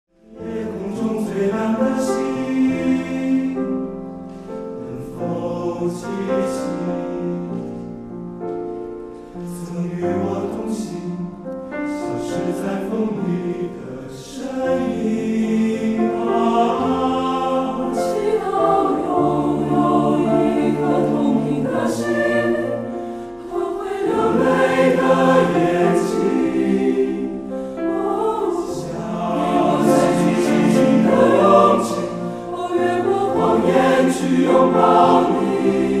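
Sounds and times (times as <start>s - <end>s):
slow choral singing: 0.2s - 8.1s, 8.8s - 36.0s.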